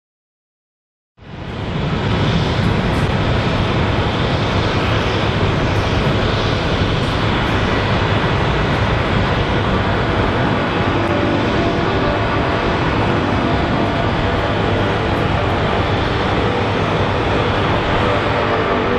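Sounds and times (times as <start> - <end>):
jet engines at takeoff: 1.2 - 18.9.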